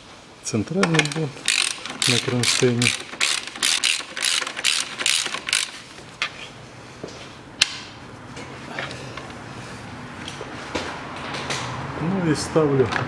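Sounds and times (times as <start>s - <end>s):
ratchet wrench clicking: 1.0s - 5.8s.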